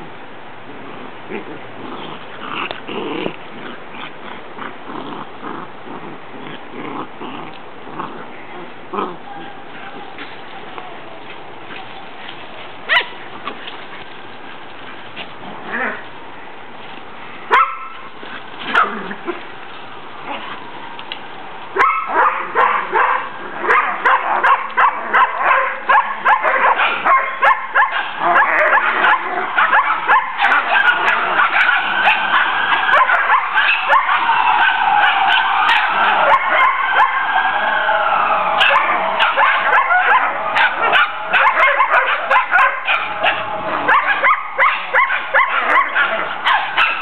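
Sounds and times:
dogs barking and yipping: 0:11.8 - 0:13.8, 0:17.5 - 0:19.5, 0:21.7 - 0:47.0.

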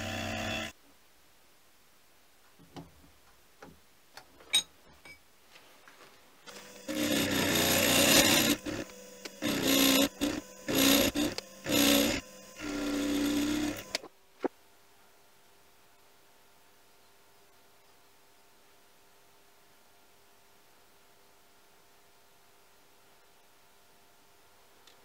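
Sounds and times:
end mill cutting metal: 0:00.0 - 0:00.7, 0:06.5 - 0:14.0
spindle hum: 0:00.0 - 0:00.7, 0:06.5 - 0:14.6.

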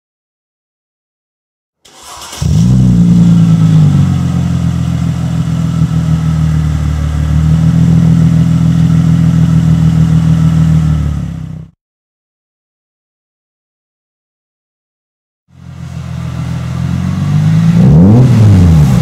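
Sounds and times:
car engine starting and idling: 0:01.8 - 0:11.7, 0:15.6 - 0:19.0.

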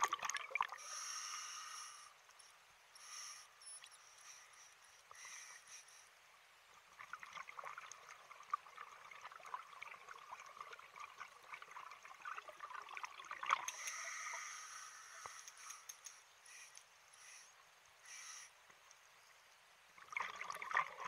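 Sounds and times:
regulator hiss: 0:00.8 - 0:02.2, 0:13.7 - 0:18.6
sharp tick: 0:15.2 - 0:16.9.

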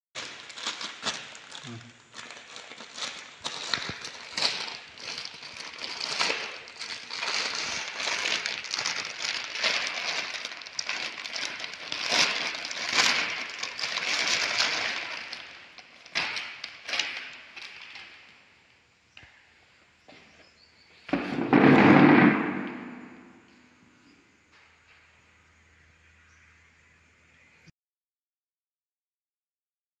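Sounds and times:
plastic bags crinkling: 0:00.2 - 0:18.7, 0:21.1 - 0:23.5.

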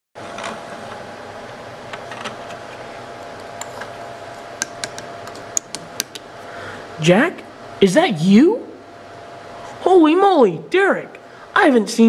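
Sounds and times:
room hum: 0:00.2 - 0:12.0.

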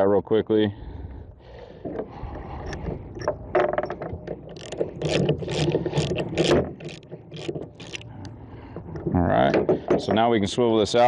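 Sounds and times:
metal scraping: 0:02.4 - 0:08.2
ratchet wrench clicking: 0:04.6 - 0:08.0.

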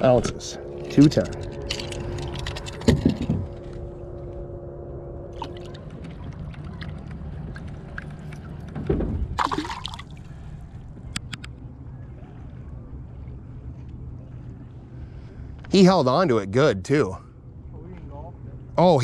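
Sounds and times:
water sloshing and splashing: 0:05.3 - 0:10.9.

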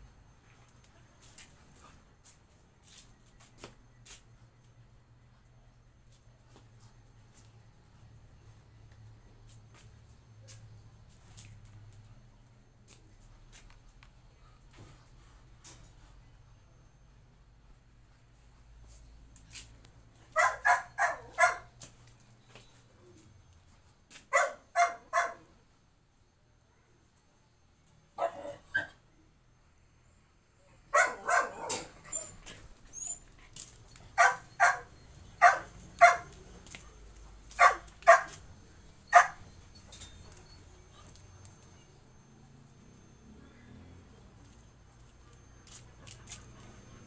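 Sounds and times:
dog barking: 0:20.3 - 0:21.7, 0:24.3 - 0:25.5, 0:28.2 - 0:29.0, 0:30.9 - 0:32.0, 0:34.2 - 0:36.3, 0:37.6 - 0:38.4, 0:39.1 - 0:39.4.

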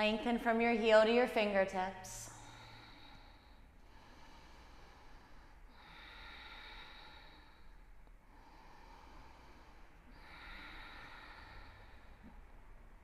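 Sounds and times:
low room hum: 0:00.0 - 0:13.0
woman breathing slowly: 0:02.2 - 0:13.0.

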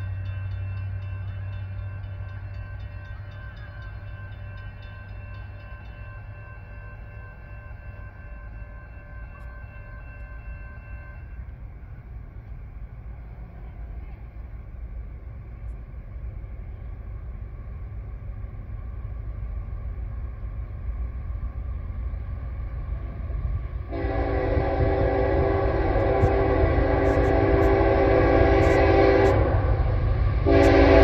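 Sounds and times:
high multi-tone ringing: 0:00.0 - 0:11.4
freight train rumble: 0:00.0 - 0:31.0.

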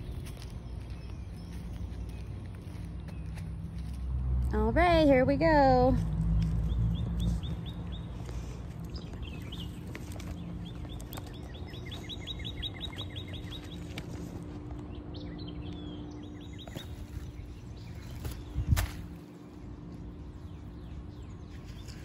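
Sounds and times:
outdoor background noise: 0:00.0 - 0:22.0
steady low hum: 0:00.0 - 0:22.0
bird chirping: 0:06.4 - 0:19.0.

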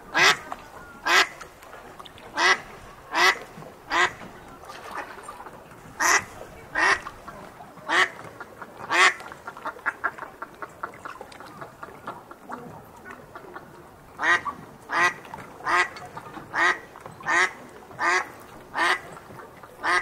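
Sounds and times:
duck quacking: 0:00.1 - 0:01.4, 0:02.3 - 0:04.2, 0:06.0 - 0:07.1, 0:07.9 - 0:08.2, 0:08.9 - 0:09.2, 0:14.2 - 0:19.1, 0:19.8 - 0:20.0.

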